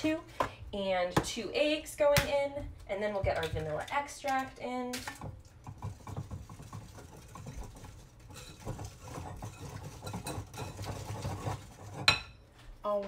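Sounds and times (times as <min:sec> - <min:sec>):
whisk clicking in a bowl: 0:05.0 - 0:12.2.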